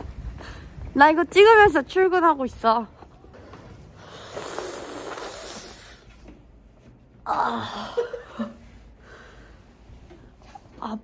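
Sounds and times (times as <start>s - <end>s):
woman shivering groan: 7.3s - 8.4s.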